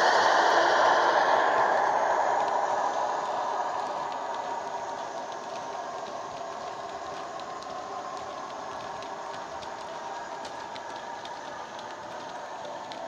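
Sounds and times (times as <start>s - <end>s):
wagon wheels clicking on rail joints: 2.4s - 13.0s.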